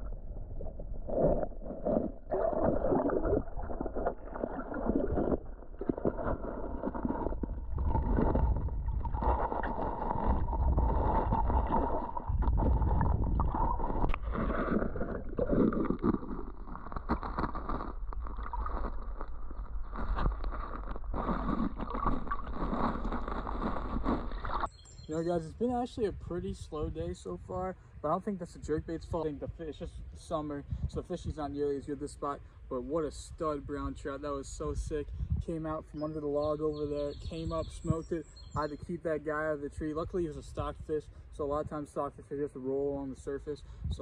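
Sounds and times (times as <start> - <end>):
underwater creek rushing: 0.0 - 25.3.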